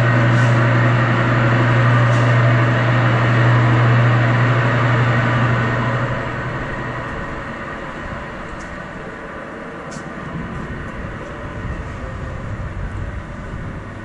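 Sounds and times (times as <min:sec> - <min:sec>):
low hum: 0:00.0 - 0:14.0
wind buffeting microphone: 0:10.0 - 0:14.0.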